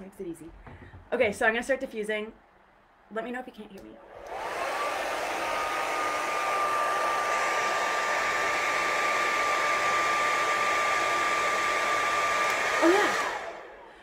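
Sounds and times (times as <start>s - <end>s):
hair dryer running: 4.0s - 14.0s.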